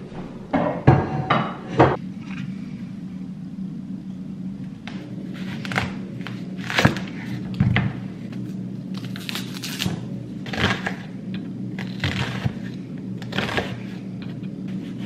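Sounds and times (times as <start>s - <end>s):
low hum: 0.0s - 15.0s
onion skin rustling: 5.2s - 15.0s.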